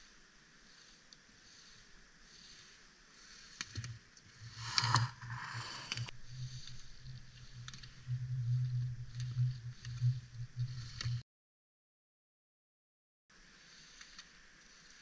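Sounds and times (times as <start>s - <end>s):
low fluttering rumble: 3.9s - 11.2s
ski edges scraping snow: 4.4s - 6.8s.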